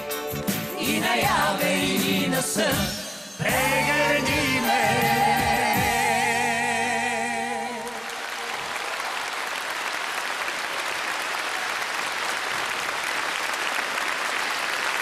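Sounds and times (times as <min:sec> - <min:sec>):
band playing: 0:00.0 - 0:07.8
audience applauding: 0:07.6 - 0:15.0.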